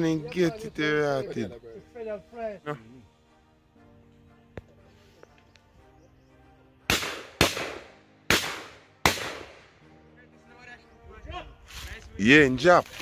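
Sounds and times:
shotgun shots: 0:06.9 - 0:09.7.

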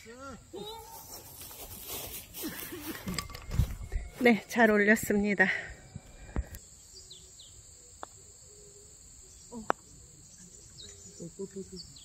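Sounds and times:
high insect drone: 0:00.0 - 0:12.0.

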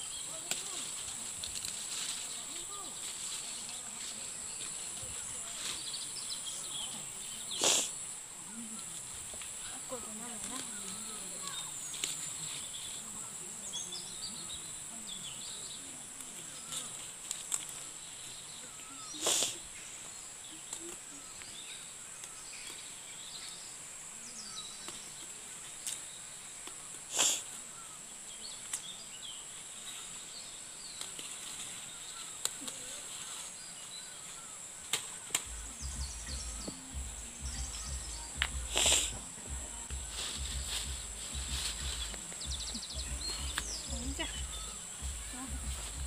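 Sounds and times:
high-pitched insect chorus: 0:00.0 - 0:46.0
leaves rustling and snapping: 0:00.3 - 0:06.1, 0:08.9 - 0:13.1, 0:16.1 - 0:18.3, 0:19.2 - 0:23.0, 0:24.8 - 0:27.4, 0:28.6 - 0:29.0, 0:30.8 - 0:35.6, 0:38.4 - 0:43.9
faint bird chirps: 0:17.7 - 0:46.0.

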